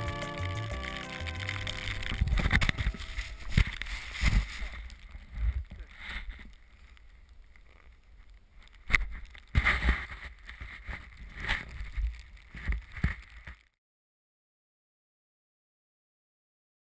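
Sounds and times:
snow scraping camera housing: 0.3 - 7.0, 8.8 - 13.6.

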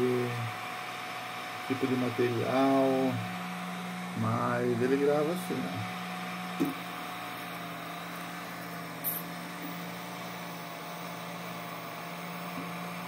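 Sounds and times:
laser engraver humming: 0.0 - 13.0.

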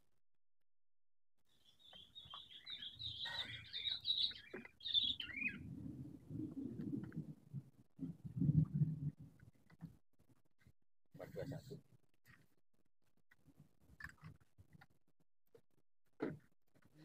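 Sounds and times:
small birds chirping: 1.4 - 5.7.

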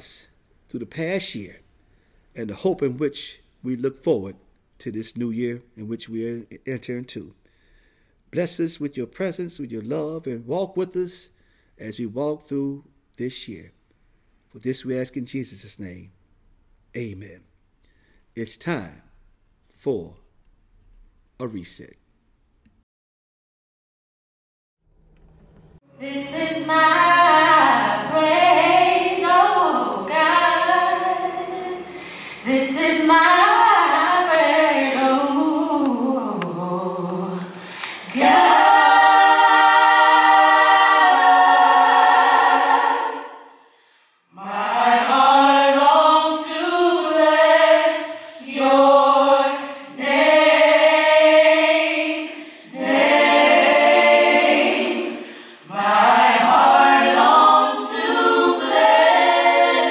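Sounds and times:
choir singing: 25.9 - 43.6, 44.3 - 59.9.

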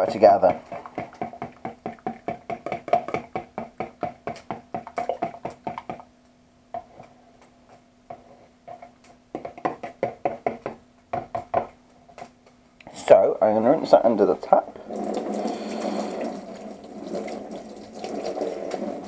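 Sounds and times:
fork beating eggs in a plastic jug: 0.0 - 6.1, 8.1 - 11.8.

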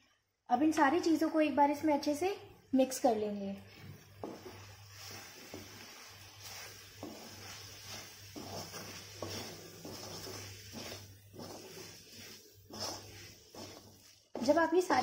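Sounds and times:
wooden spatula scraping pan: 4.2 - 15.0.

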